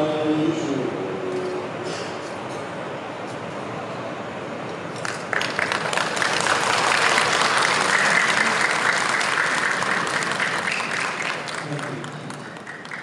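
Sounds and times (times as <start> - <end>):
audience applause: 5.0 - 13.0.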